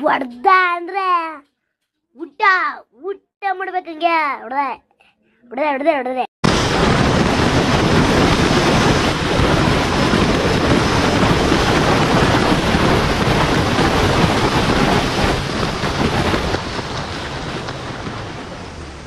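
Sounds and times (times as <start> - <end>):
wind buffeting microphone: 6.4 - 19.0.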